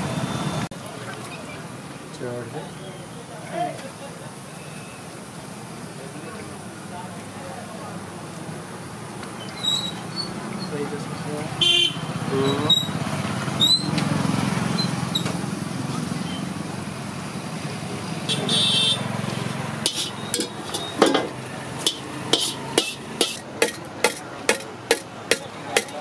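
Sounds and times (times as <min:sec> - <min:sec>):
metal skimmer clanking on iron pan: 0:19.8 - 0:26.0.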